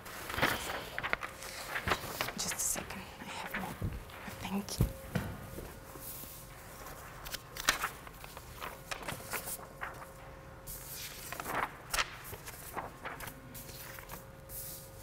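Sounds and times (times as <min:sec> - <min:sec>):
paper rustling and crinkling: 0:00.0 - 0:15.0.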